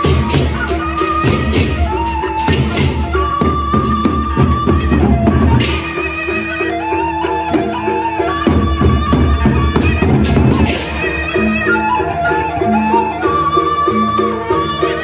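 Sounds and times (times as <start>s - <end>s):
barrel drums beating: 0.0s - 11.7s
cymbals and small gongs clashing: 0.0s - 11.8s
reed melody: 0.0s - 12.8s.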